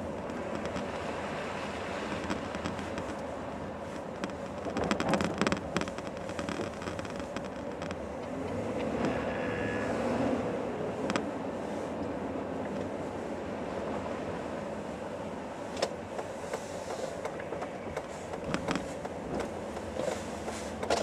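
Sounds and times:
car engine and tyre rumble: 0.0s - 21.0s
crackling: 2.0s - 8.4s.

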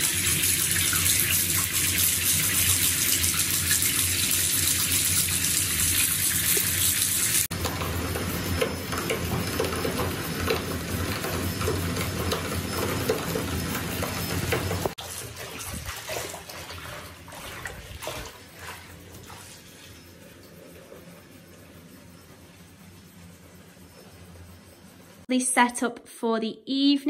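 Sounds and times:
tap water gushing into bathtub: 0.0s - 21.3s
water splashing into bubble bath: 14.2s - 19.5s.

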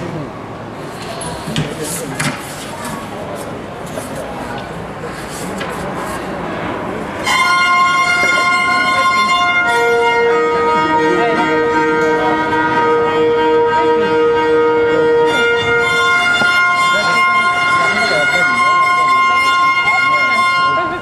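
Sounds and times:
violin long held notes: 7.2s - 21.0s.

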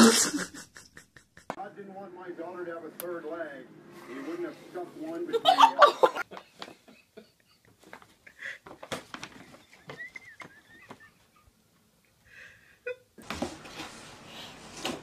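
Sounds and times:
paper bag rustling and scraping: 13.3s - 15.0s.

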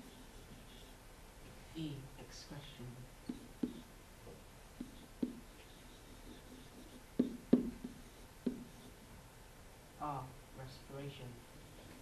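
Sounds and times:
stylus tapping on screen: 3.2s - 5.7s, 6.3s - 8.9s.

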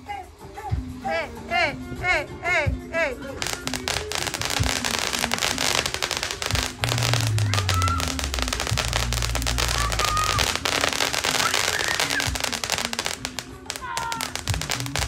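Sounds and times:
firework crackling and popping: 3.4s - 15.0s.

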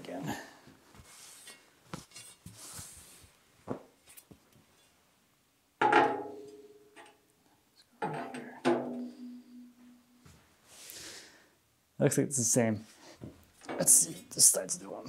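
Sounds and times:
ringing metal clanks: 8.1s - 10.1s.

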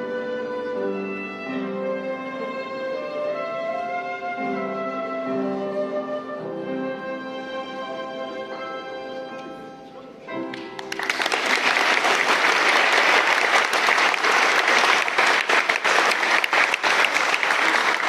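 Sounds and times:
violin and flute duet: 0.0s - 10.1s
audience applause: 10.5s - 18.0s.

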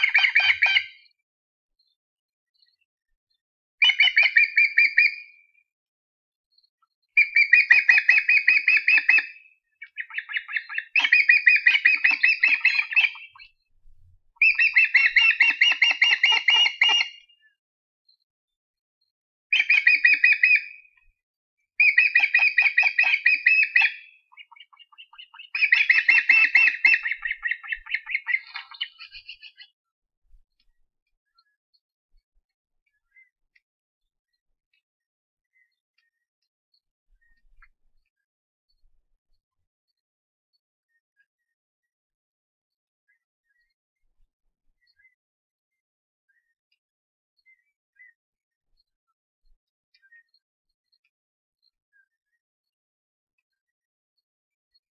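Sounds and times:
osprey calling high chirps: 3.8s - 5.5s, 7.2s - 13.6s, 14.4s - 17.4s, 19.5s - 20.8s, 21.8s - 29.7s.

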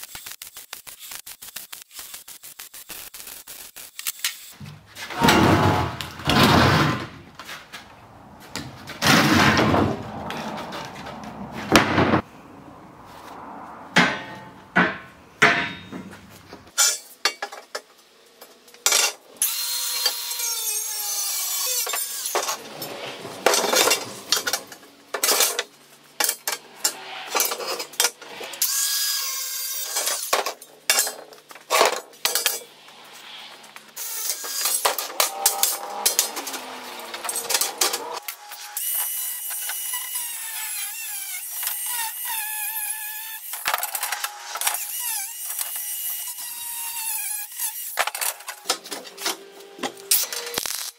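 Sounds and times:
angle grinder grinding steel: 18.8s - 50.9s.

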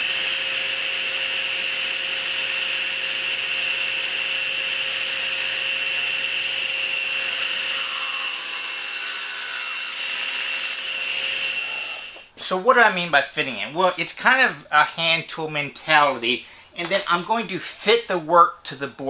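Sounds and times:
saw cutting wood: 0.0s - 12.3s
table saw blade whining: 0.0s - 12.3s.

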